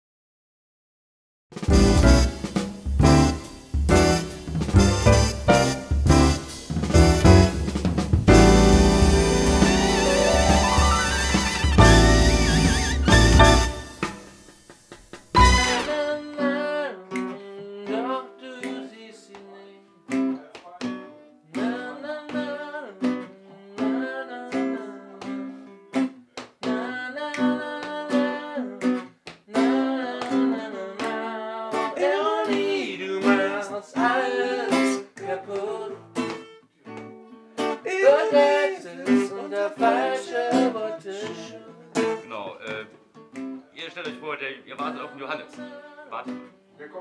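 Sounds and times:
acoustic guitar picking: 1.6s - 14.6s
person singing: 15.6s - 20.8s, 21.4s - 25.6s, 26.6s - 28.8s, 29.5s - 36.0s, 37.8s - 42.2s.

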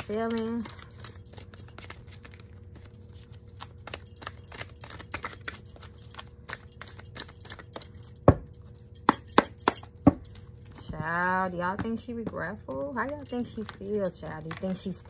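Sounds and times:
cards shuffling: 0.0s - 8.0s, 11.9s - 15.0s.

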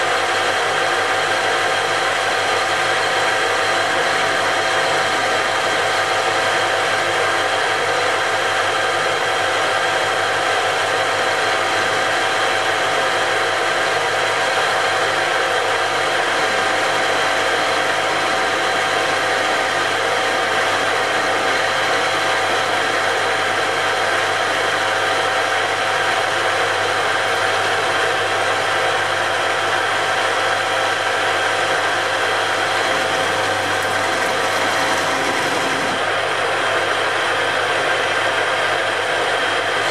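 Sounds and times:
metal lathe gear whine: 0.0s - 39.9s
lathe tool cutting metal: 9.6s - 36.5s.

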